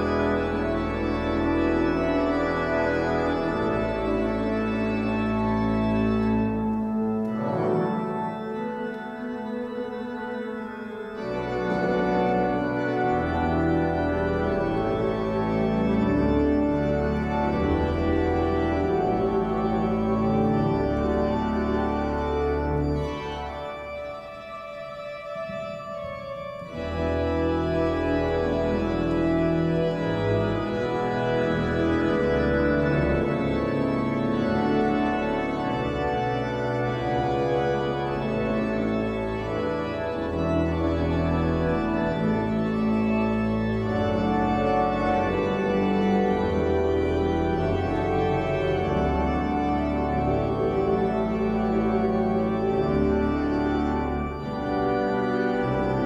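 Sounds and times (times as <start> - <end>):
church organ playing chords: 0.0 - 56.0.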